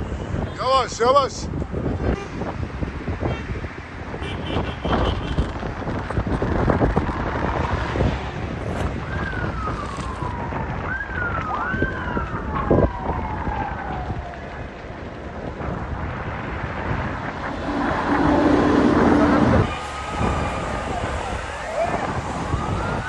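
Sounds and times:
wind noise on microphone: 0.0s - 23.0s
emergency sirens wailing: 7.4s - 23.0s.

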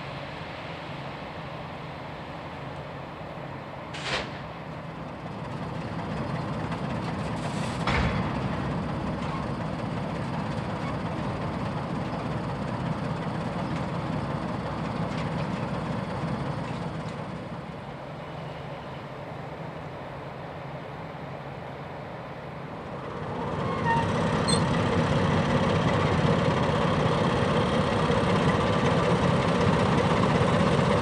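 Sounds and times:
train wheels rumbling on rails: 0.0s - 31.0s.

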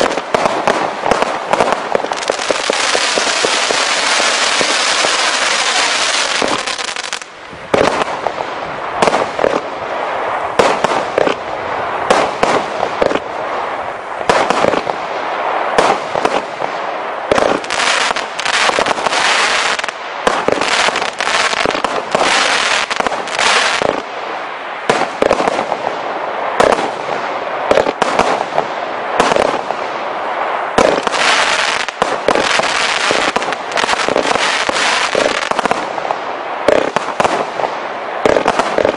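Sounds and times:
firework hiss: 0.0s - 11.4s, 30.7s - 38.9s
firework bangs: 0.0s - 30.0s, 30.7s - 38.9s.

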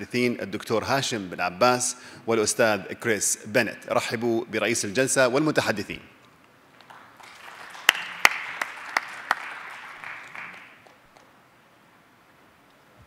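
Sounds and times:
audience applauding: 6.8s - 11.3s
close single claps: 6.8s - 11.3s.

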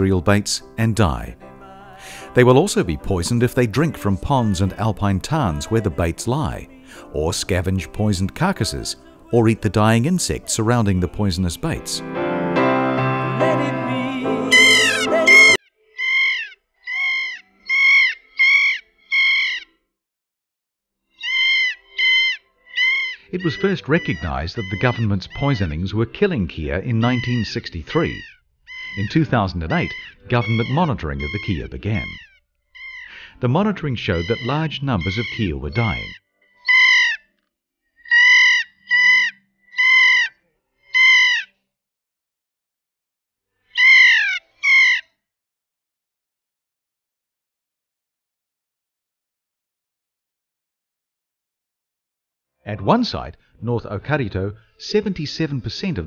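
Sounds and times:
piano music: 0.0s - 15.6s
parrot calling: 14.4s - 19.7s, 21.2s - 25.8s, 27.0s - 33.3s, 34.1s - 37.3s, 38.0s - 41.5s, 43.7s - 45.0s.

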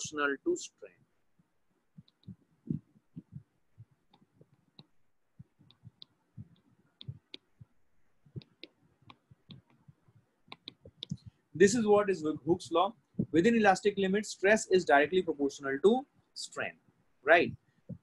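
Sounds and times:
stylus tapping on a screen: 2.0s - 11.4s.

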